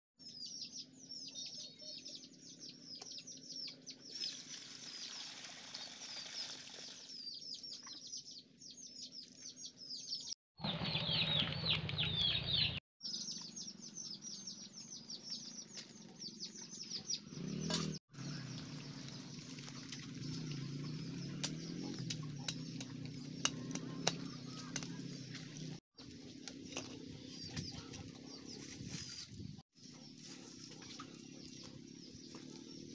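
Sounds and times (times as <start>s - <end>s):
small birds chirping: 0.2s - 32.9s.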